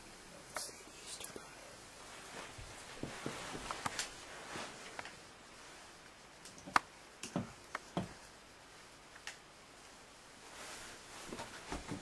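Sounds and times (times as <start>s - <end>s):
soft rustling: 0.4s - 6.4s, 9.6s - 12.0s.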